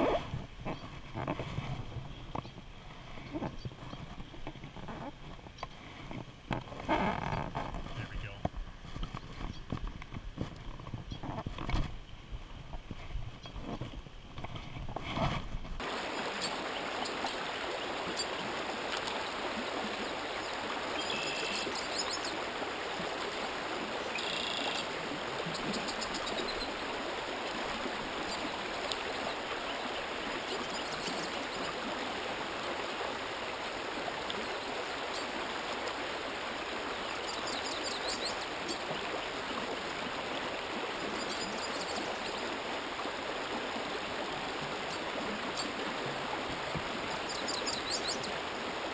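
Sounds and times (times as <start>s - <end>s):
creek rushing over riffles: 15.8s - 48.9s.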